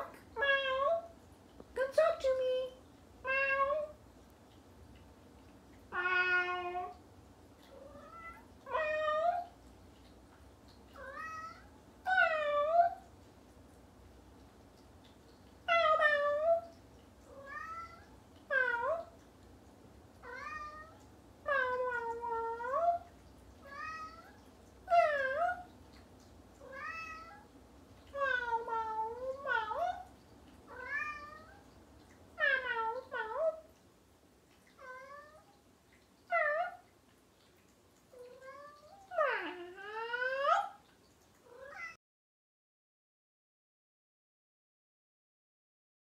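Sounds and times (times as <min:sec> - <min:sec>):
cat meowing: 0:05.9 - 0:07.0, 0:07.8 - 0:09.5, 0:11.0 - 0:13.0, 0:17.3 - 0:19.1, 0:20.2 - 0:23.0, 0:23.6 - 0:25.7, 0:26.6 - 0:27.5, 0:30.7 - 0:31.6, 0:34.8 - 0:35.6, 0:41.5 - 0:42.0.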